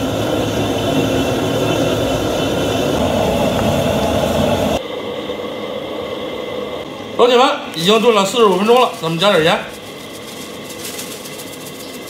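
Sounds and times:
gas burner roaring: 0:00.0 - 0:12.0
steady hiss: 0:07.8 - 0:12.0.

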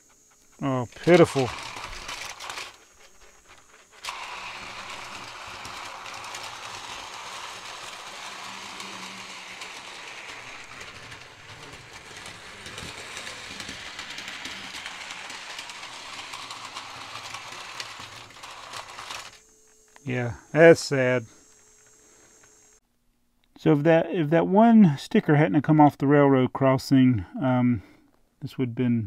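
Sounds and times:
toy train running on track: 0:00.0 - 0:22.5.

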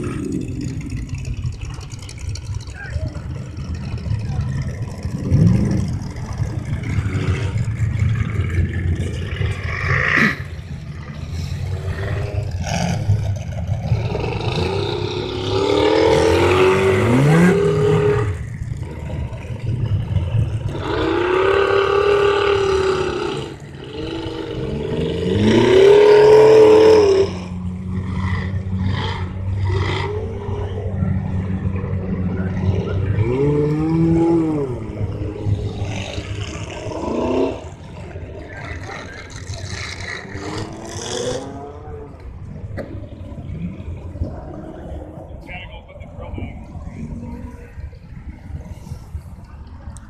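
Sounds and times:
steady low rumble: 0:00.0 - 0:25.5
suv engine revving in mud: 0:00.0 - 0:42.2.

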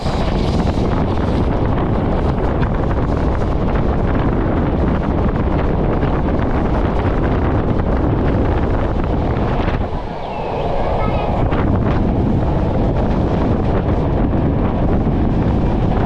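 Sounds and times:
moving train rumble: 0:00.0 - 0:16.0
wind buffeting microphone: 0:00.0 - 0:16.0.

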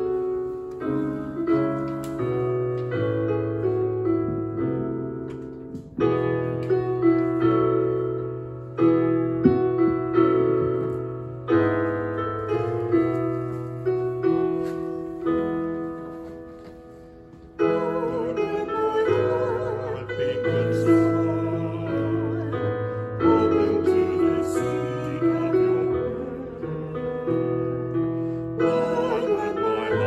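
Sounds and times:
digital piano playing hymn chords: 0:00.0 - 0:30.0
person singing: 0:17.6 - 0:27.7, 0:28.5 - 0:30.0.

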